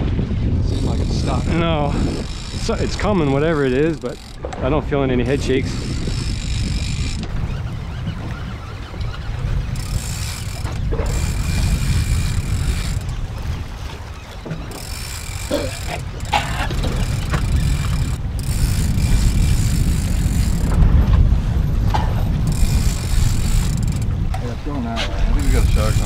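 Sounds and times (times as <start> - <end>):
wind buffeting microphone: 0.0 - 26.0
fishing reel being cranked: 0.7 - 4.4, 5.3 - 7.3, 9.6 - 13.2, 14.7 - 20.8, 22.5 - 24.1, 25.3 - 26.0.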